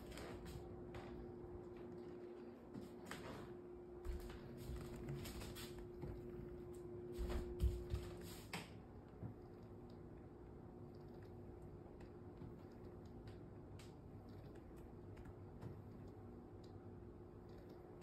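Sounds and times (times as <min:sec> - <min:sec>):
massage chair motor hum: 0:00.0 - 0:18.0.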